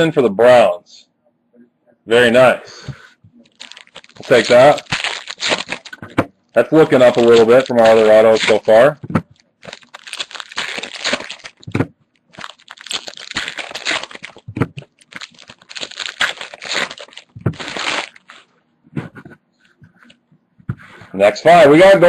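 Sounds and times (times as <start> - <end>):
wrapper crinkling and tearing: 3.4 - 18.5.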